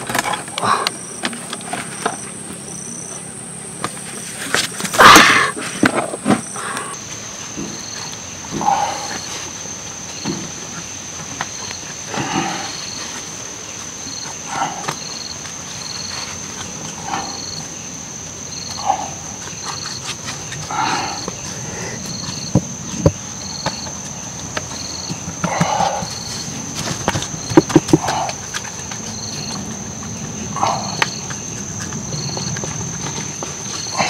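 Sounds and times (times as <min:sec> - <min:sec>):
high insect drone: 0:00.0 - 0:34.0
low animal call: 0:04.9 - 0:09.5, 0:16.8 - 0:17.8, 0:18.6 - 0:22.6, 0:25.2 - 0:26.6, 0:27.4 - 0:32.6.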